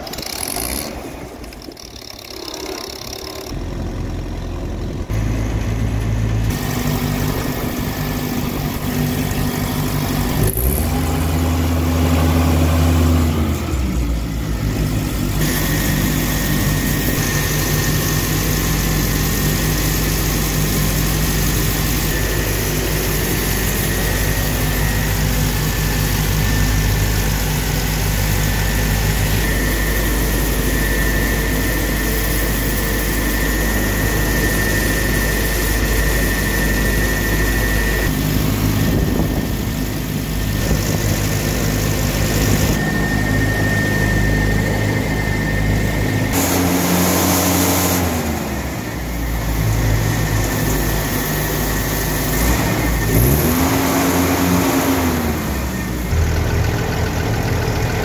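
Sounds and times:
gasoline engine running: 0.0 - 58.0
thin high whine: 13.6 - 53.2.

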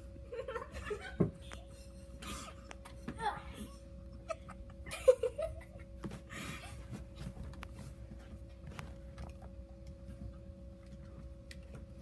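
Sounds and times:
faint hum: 0.0 - 12.0
rustling and shuffling: 5.6 - 12.0.

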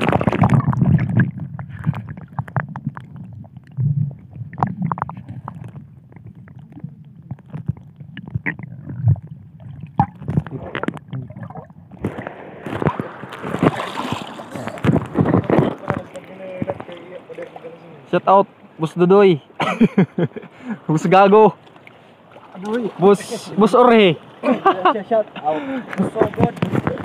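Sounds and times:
wind noise: 0.0 - 16.9, 25.9 - 27.0
underwater pops and knocks: 0.0 - 17.0
muffled underwater gurgling: 0.0 - 17.3
water splashing: 0.0 - 19.0, 21.0 - 27.0.

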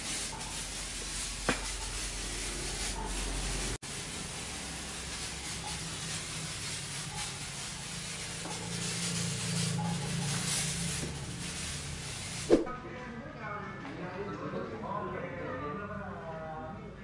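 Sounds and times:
fogging machine spraying: 0.0 - 12.7.

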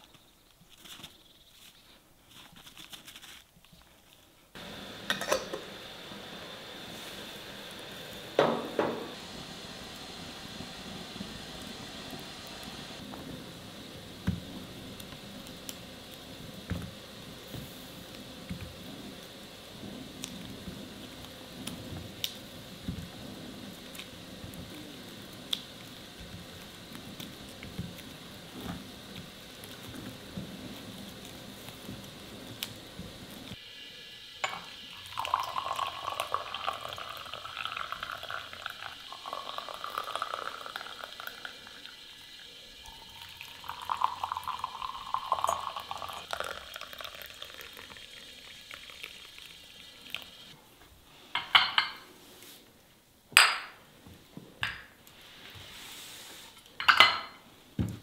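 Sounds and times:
faint steady hiss: 0.0 - 58.0
liquid pouring into vessel: 34.4 - 50.4.

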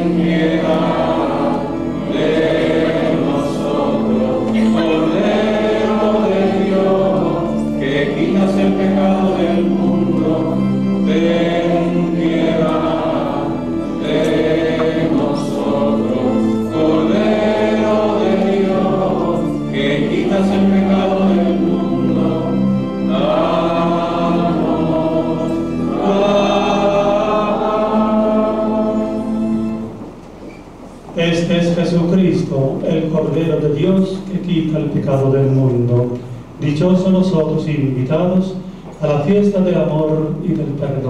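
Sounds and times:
voices singing a hymn: 0.0 - 30.2
low accompanying note: 0.0 - 30.3.

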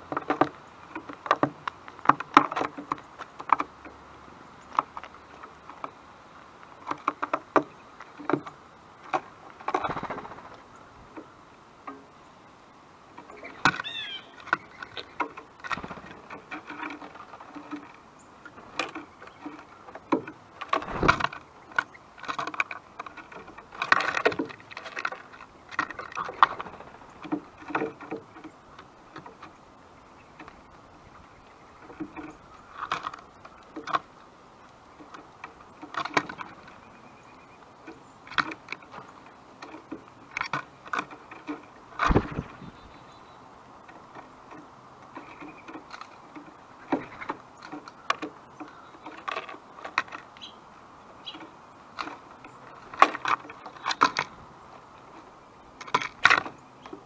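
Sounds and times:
birds tapping at a feeder: 0.0 - 12.3, 13.0 - 57.0
high bird chirps: 13.4 - 15.2.

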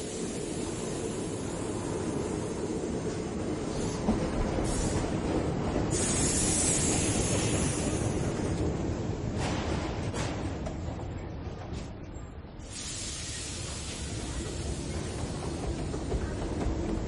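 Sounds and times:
train rushing on rails: 0.0 - 12.0, 12.6 - 17.0
bright hiss: 5.9 - 8.3, 12.6 - 16.1.

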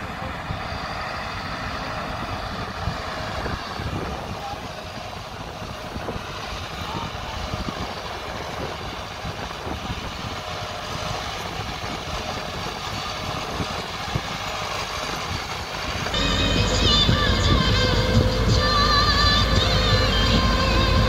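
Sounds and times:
tractor diesel engine running: 0.0 - 21.0
background music: 16.2 - 21.0.

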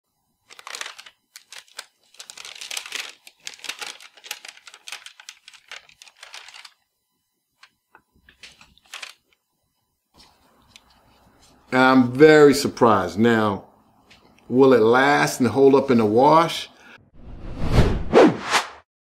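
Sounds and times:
light paper rustles: 0.4 - 6.8, 8.3 - 9.4
paper crinkling as peeled off: 0.4 - 6.8, 8.3 - 9.4.

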